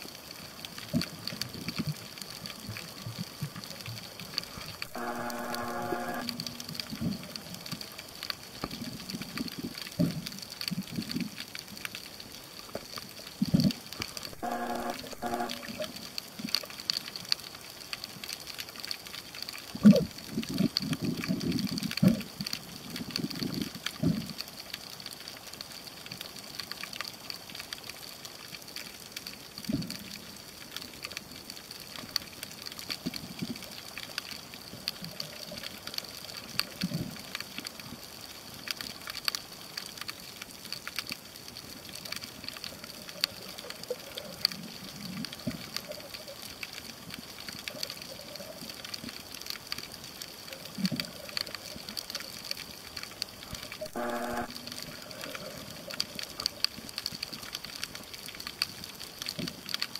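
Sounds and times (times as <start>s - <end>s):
faint clicking: 0.0s - 59.9s
steady high hiss: 4.5s - 8.2s, 14.2s - 16.4s, 53.6s - 56.4s
short buzzing tone: 4.9s - 7.0s, 14.4s - 15.9s, 53.8s - 55.0s.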